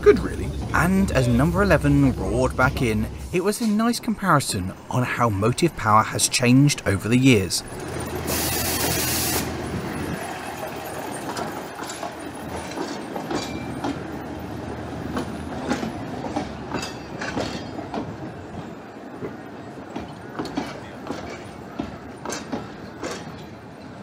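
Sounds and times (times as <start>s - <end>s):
locomotive hiss: 0.0s - 5.7s, 6.3s - 11.1s
diesel locomotive rumble: 0.0s - 6.0s, 6.7s - 23.8s
wheels clicking over rail joints: 6.9s - 24.0s.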